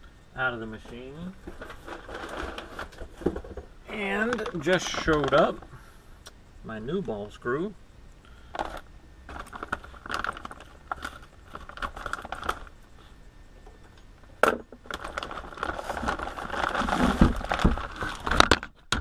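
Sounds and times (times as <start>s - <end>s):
plastic bag crinkling: 1.0s - 3.6s, 4.2s - 5.7s, 8.6s - 12.8s, 14.7s - 18.8s.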